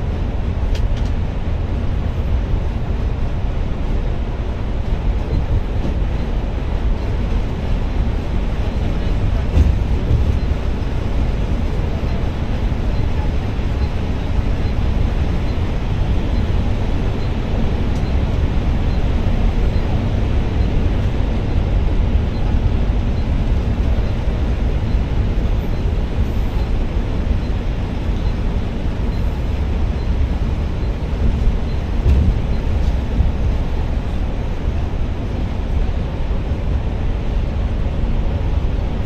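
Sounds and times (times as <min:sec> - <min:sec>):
bus engine and road rumble: 0:00.0 - 0:39.0
bus bump: 0:08.8 - 0:11.0, 0:31.1 - 0:34.2.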